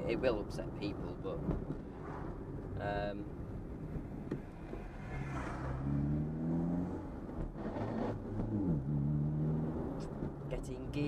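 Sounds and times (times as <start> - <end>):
low road rumble: 0.0 - 11.0
car engine revving: 4.8 - 10.1.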